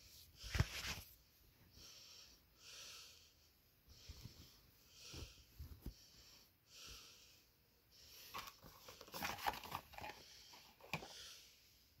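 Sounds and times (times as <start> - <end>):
rustling and crinkling packaging: 8.3 - 11.1.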